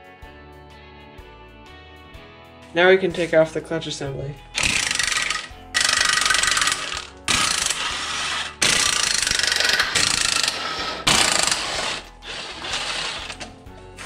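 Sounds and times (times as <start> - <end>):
ratchet wrench clicking: 4.6 - 13.5.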